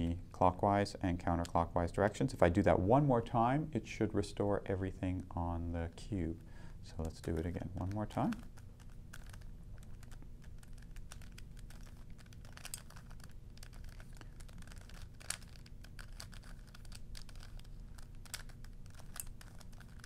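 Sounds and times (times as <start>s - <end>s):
puzzle cube clicking: 7.0s - 20.0s.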